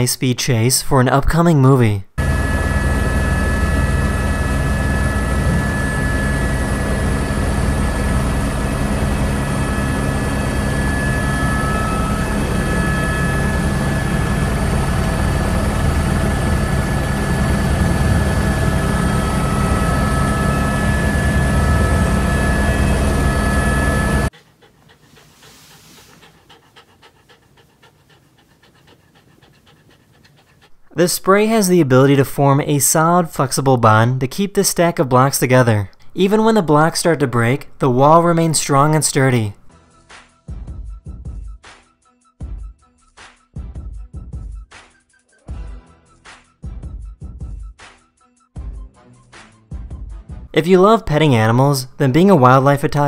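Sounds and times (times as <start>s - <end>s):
helicopter high whine: 2.2s - 31.7s
helicopter rotor beat: 2.2s - 31.7s
dog panting: 8.8s - 20.9s, 24.1s - 31.6s.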